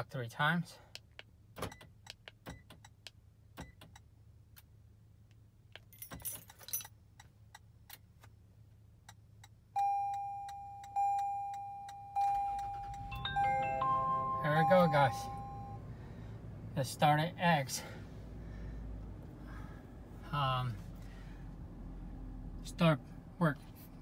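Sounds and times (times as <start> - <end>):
keys jangling: 5.8 - 7.0
car dashboard chime: 9.8 - 15.9.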